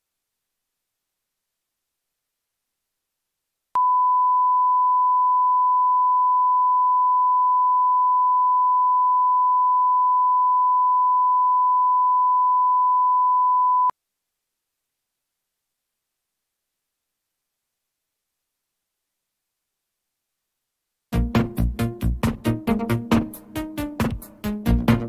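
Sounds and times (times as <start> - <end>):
steady pure tone beep: 3.8 - 13.9.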